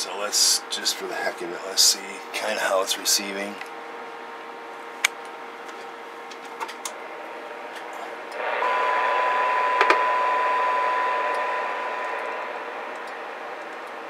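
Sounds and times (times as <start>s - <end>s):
steady test tone: 6.9s - 14.0s.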